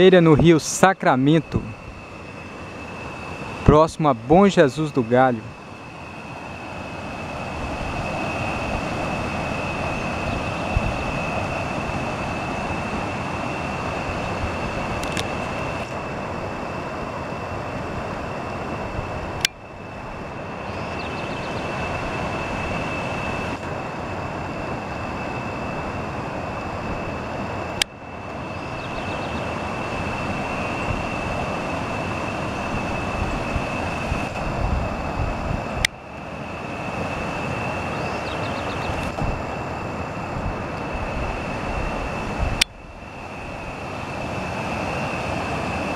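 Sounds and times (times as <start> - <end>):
thin high-pitched whine: 0.0 - 34.5.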